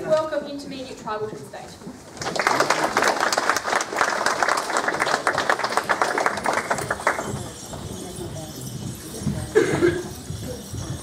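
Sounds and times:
audience clapping: 2.1 - 7.6.

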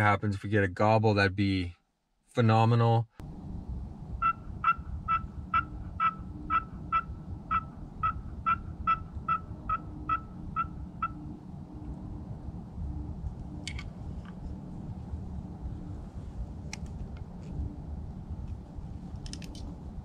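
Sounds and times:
turkey call yelps: 4.2 - 11.2.

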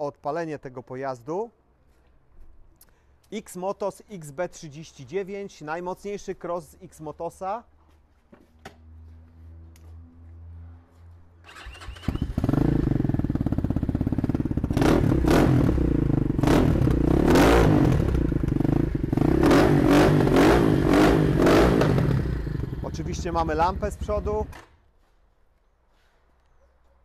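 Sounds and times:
dirt bike engine revving: 11.5 - 24.5.

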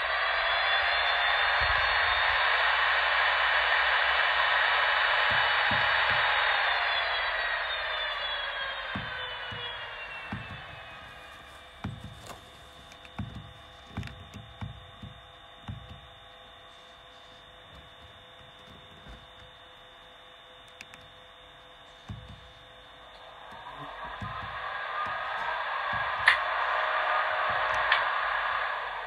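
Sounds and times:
electrical hum of fixed tones: 0.0 - 29.0
rising whine: 0.0 - 29.0
short low thumps: 5.1 - 6.8.

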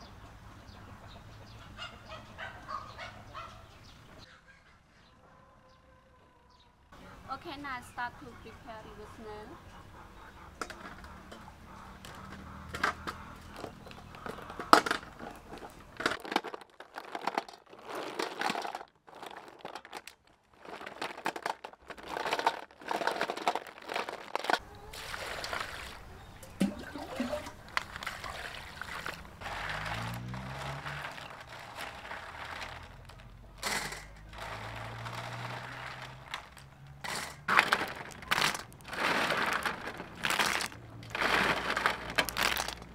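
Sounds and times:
snail shells clattering in metal bowl: 12.0 - 24.6, 25.4 - 42.9
water swishing: 24.2 - 33.2.

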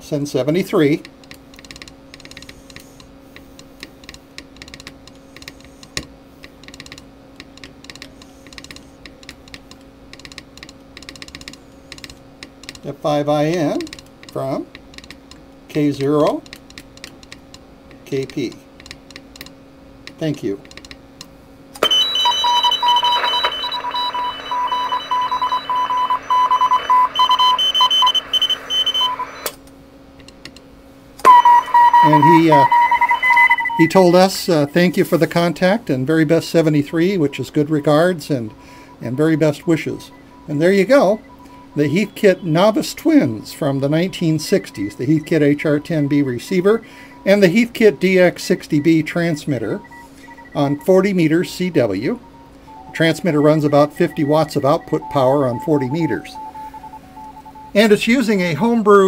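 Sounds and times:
low electrical hum: 0.0 - 59.0
faint higher morse beeps: 21.8 - 29.5, 31.3 - 34.8, 37.0 - 58.7
morse code beeps: 21.8 - 29.5, 31.2 - 35.2, 37.0 - 58.8
radio band hiss: 21.8 - 29.5, 36.1 - 56.9.

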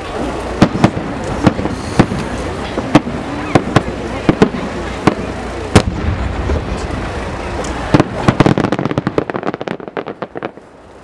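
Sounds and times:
rapid firework crackling: 0.0 - 11.0
rumble of echoes: 0.0 - 11.0
firework bang: 0.6 - 10.6.

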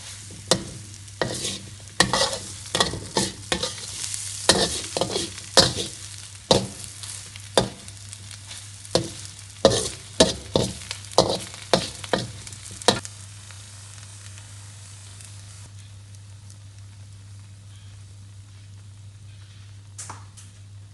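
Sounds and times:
spatula scraping in a wok: 0.0 - 13.1
faint sizzle: 0.0 - 20.9.

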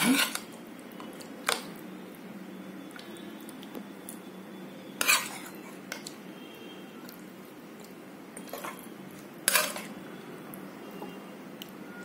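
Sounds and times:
metal spoon scraping metal pot: 0.0 - 0.4, 5.0 - 5.5, 9.4 - 10.0.

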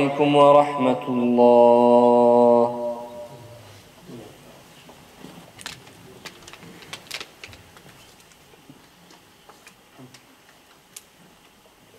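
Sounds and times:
people rustling: 3.6 - 10.3.

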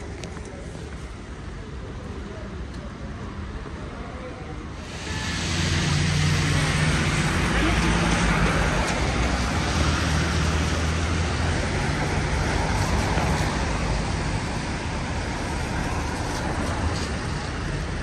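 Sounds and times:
vehicle engines humming: 3.4 - 18.0
tyres hissing on wet road: 4.8 - 18.0.

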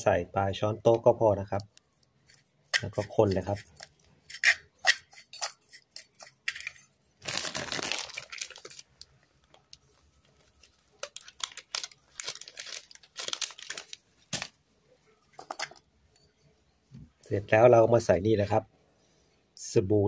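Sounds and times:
spoon scraping in ceramic bowl: 2.3 - 6.9.

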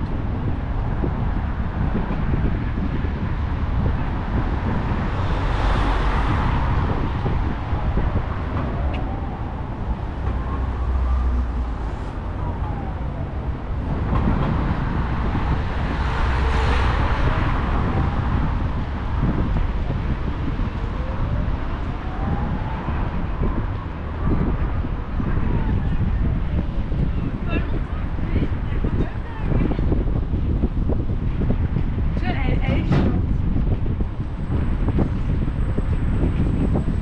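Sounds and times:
road traffic rumble: 0.0 - 37.0
loud vehicle passing: 0.4 - 27.4.

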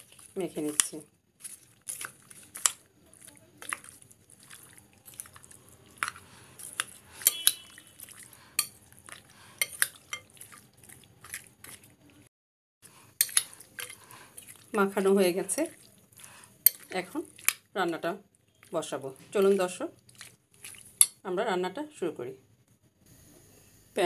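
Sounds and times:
metal spoon clinking against bowl: 6.6 - 8.9, 9.6 - 10.5, 13.2 - 14.0, 16.7 - 17.6.

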